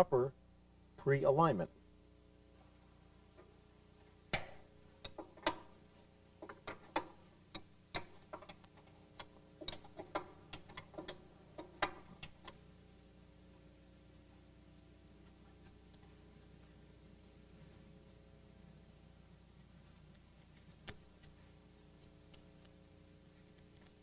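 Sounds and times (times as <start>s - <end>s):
wrench clicking on nut: 6.4s - 12.6s.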